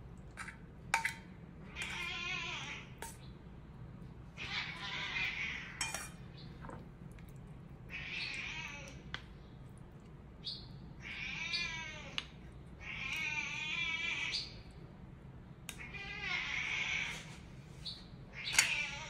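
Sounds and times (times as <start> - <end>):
cat meowing: 1.7 - 3.0, 4.4 - 5.9, 7.9 - 9.0, 11.0 - 12.2, 12.8 - 14.4, 15.8 - 17.3.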